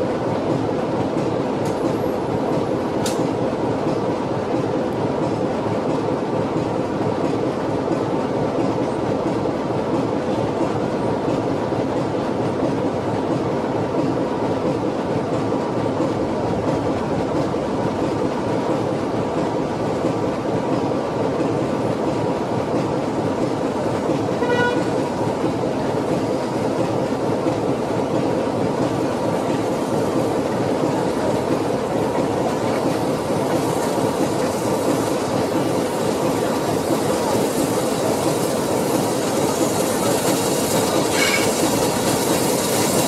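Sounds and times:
steam locomotive whistle toot: 24.4s - 24.9s, 41.1s - 41.6s.

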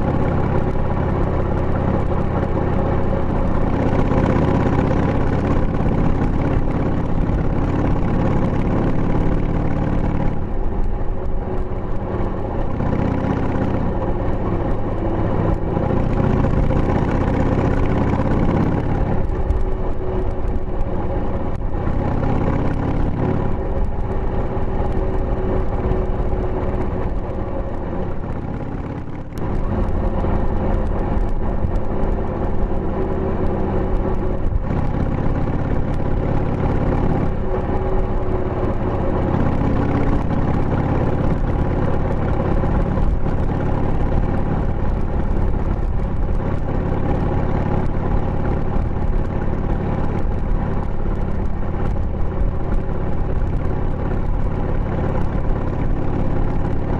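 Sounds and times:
motorcycle engine running: 0.0s - 56.9s.

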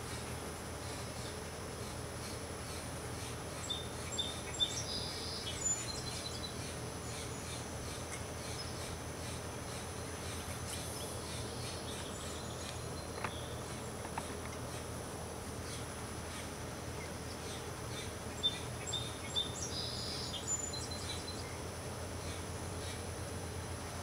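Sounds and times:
outdoor background noise: 0.0s - 24.0s.

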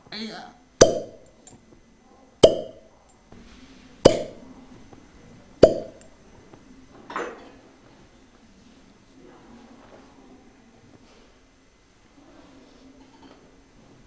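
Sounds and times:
glass cups popping onto skin: 0.8s - 1.6s, 2.4s - 2.8s, 4.1s - 4.4s, 5.6s - 6.1s.

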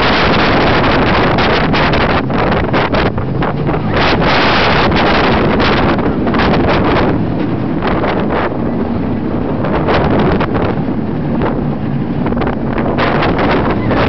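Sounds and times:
roller coaster rumbling on track: 0.0s - 14.0s
wind buffeting microphone: 0.0s - 14.0s.

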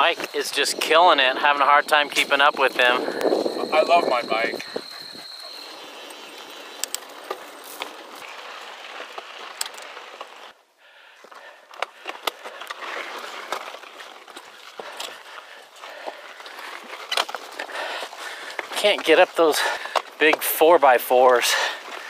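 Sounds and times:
tyres hissing on gravel: 0.0s - 22.0s
bike rattling over rocks: 6.4s - 10.6s, 11.2s - 22.0s.

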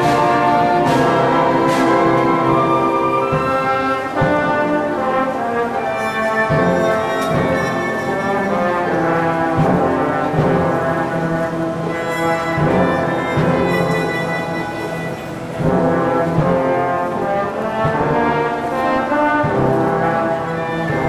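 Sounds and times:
brass playing sustained chords: 0.0s - 21.0s
low drum strokes: 0.0s - 21.0s
orchestra strings: 0.0s - 21.0s.

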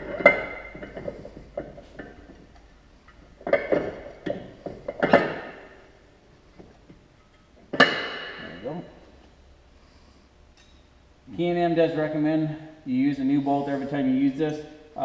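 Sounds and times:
metal clanks and clinks: 0.0s - 5.8s.

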